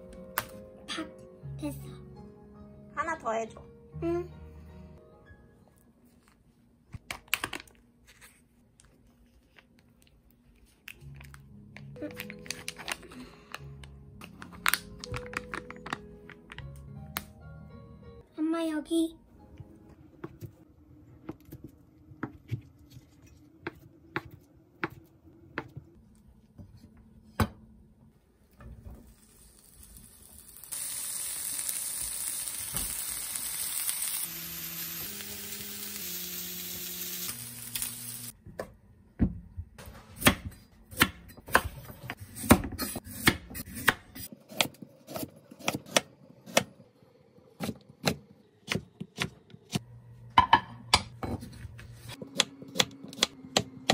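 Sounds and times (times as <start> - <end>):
meat sizzling in frying pan: 29.1 - 38.3.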